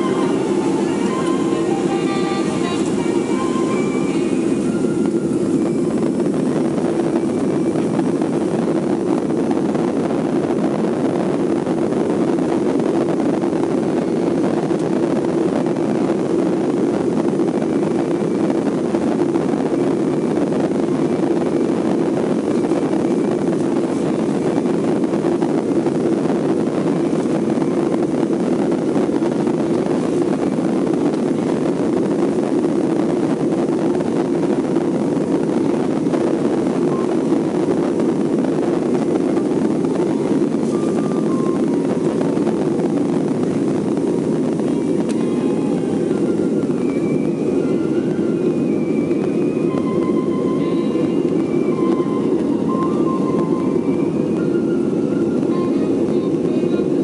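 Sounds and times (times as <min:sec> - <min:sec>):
jet engines idling in cabin: 0:00.0 - 0:57.0.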